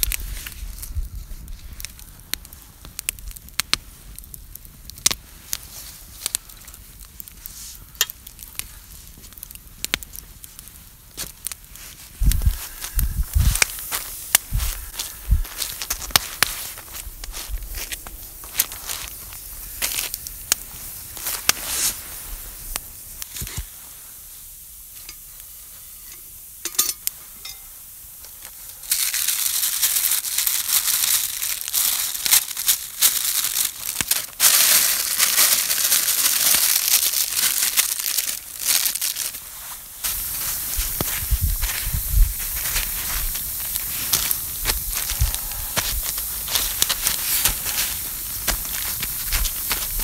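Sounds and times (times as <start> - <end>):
baking paper crinkling: 11.2 - 22.4, 28.8 - 50.0.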